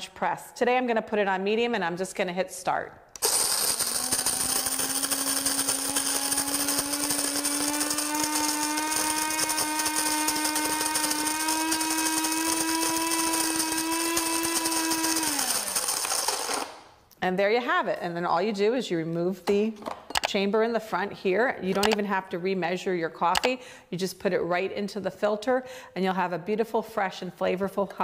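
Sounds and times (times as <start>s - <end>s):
coffee grinder motor whine: 3.2s - 16.9s
hiss of grinding beans: 3.2s - 16.9s.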